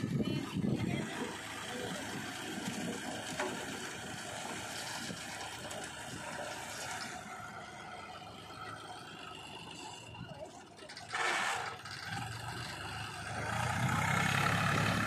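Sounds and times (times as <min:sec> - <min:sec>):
tractor engine running: 0:00.0 - 0:15.0
soil sliding off trolley: 0:10.9 - 0:12.2.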